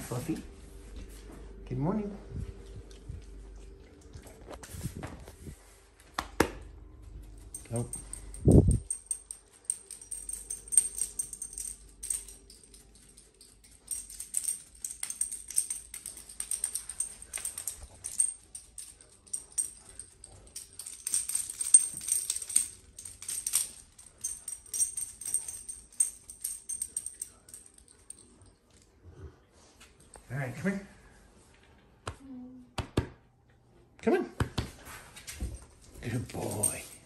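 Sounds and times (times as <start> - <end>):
metal chain collar jingling: 7.1 - 28.8, 35.3 - 37.0.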